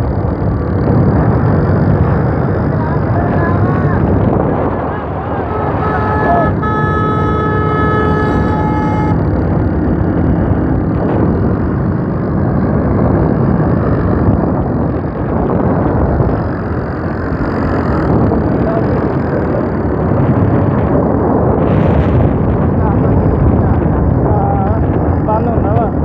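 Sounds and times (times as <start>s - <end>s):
tractor diesel engine running: 0.0s - 19.2s
heavy wind: 0.0s - 26.0s
vehicle engine rumble: 0.0s - 26.0s.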